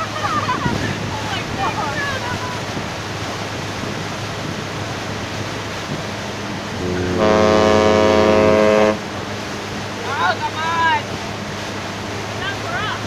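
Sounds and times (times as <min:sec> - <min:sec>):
water wash: 0:00.0 - 0:13.0
wind: 0:00.0 - 0:13.0
ship horn blast: 0:06.7 - 0:09.2.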